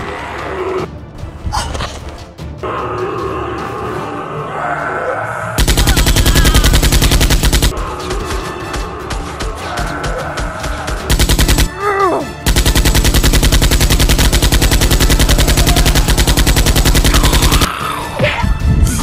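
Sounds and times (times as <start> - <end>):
background music: 0.0 - 19.0
machine-gun fire: 5.6 - 7.8, 10.9 - 11.7, 12.4 - 17.7.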